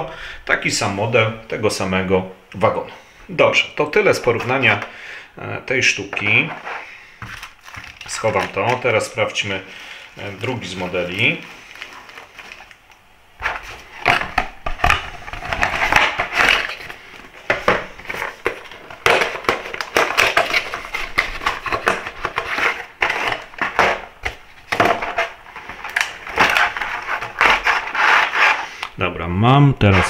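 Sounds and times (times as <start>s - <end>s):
cardboard and plastic packaging crackling: 4.0s - 4.9s, 6.1s - 28.8s.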